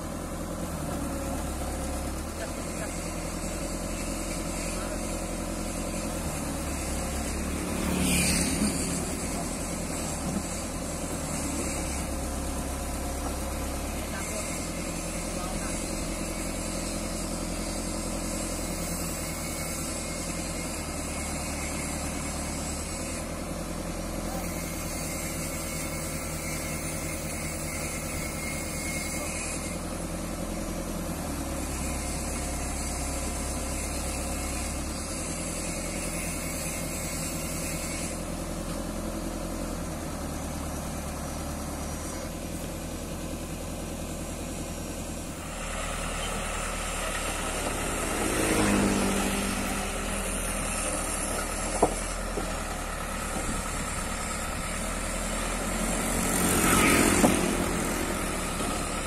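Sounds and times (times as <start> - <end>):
heavy vehicle engine idling: 0.0 - 59.0.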